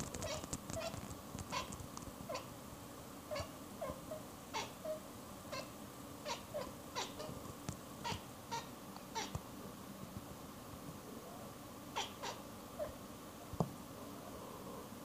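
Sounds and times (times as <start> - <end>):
cat chattering chirps: 0.2 - 1.7, 2.3 - 2.5, 3.3 - 7.3, 8.0 - 9.3, 12.0 - 13.0.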